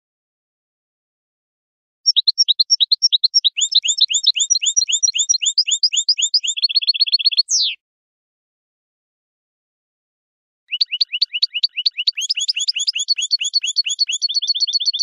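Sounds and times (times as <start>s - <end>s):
bird singing: 2.1s - 7.8s, 10.7s - 15.0s.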